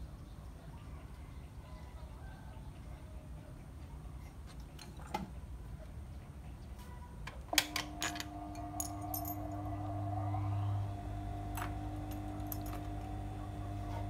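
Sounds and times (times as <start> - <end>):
steady electric hum: 7.6 - 14.0.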